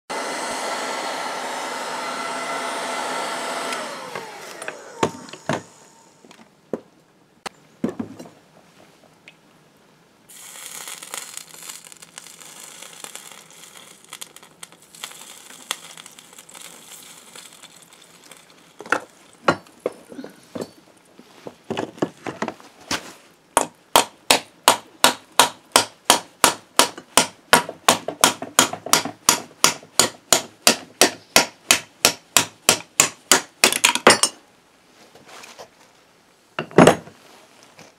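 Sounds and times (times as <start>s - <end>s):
heat gun whine: 0.1s - 6.3s
steady hiss: 10.2s - 21.6s.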